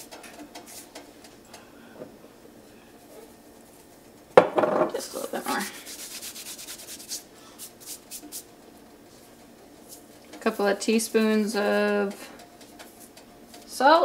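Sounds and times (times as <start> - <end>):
hands rubbing together: 5.4 - 8.5.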